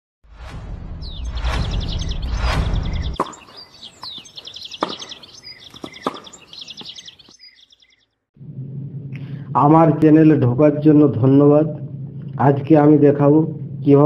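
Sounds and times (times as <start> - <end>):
low rumbling whoosh: 0.3 - 3.2, 8.4 - 14.0
bird-like chirping trills: 1.0 - 8.2.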